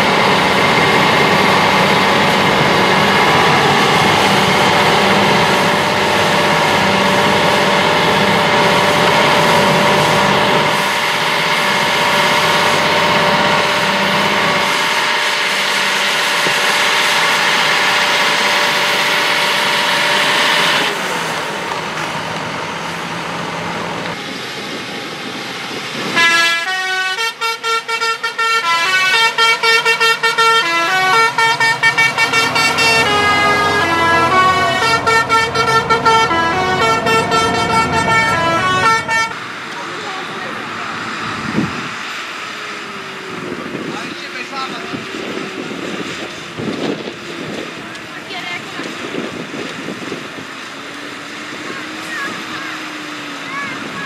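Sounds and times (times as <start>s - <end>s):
tractor diesel engine under load: 0.0s - 54.0s
short pitched horn notes: 26.2s - 39.4s.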